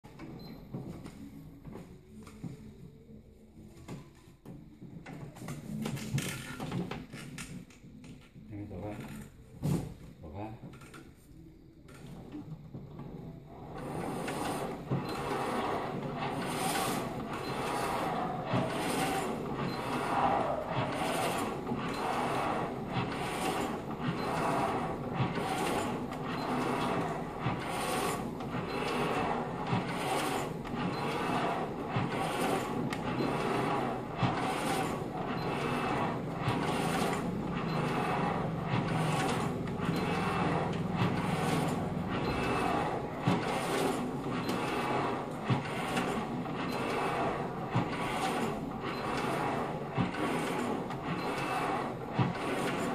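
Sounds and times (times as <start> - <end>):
paddling machine whirring: 12.0 - 52.9.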